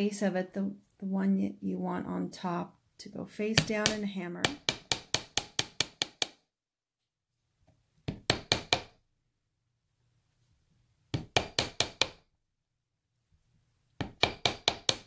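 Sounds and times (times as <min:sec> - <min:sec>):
small hammer tapping metal wire: 0:03.6 - 0:06.4, 0:11.2 - 0:12.2, 0:14.0 - 0:15.0.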